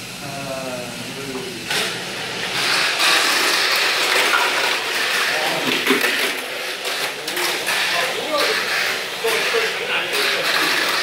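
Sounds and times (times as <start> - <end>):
toy car whirring on track: 2.5 - 11.0.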